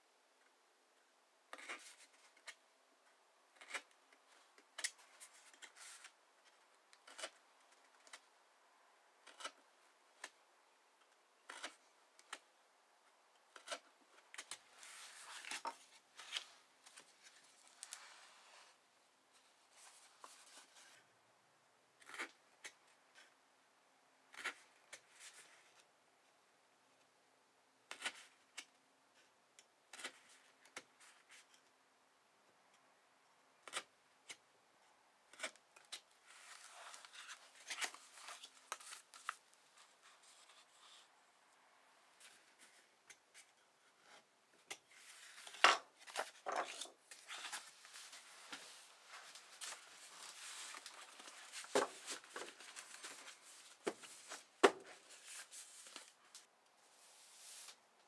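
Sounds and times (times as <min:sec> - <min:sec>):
paper rustling: 0:44.9 - 0:57.8.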